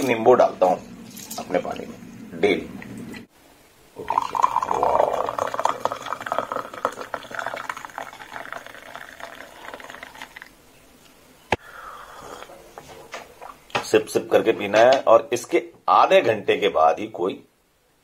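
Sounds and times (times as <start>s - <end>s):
water pouring into a glass: 4.0s - 10.5s.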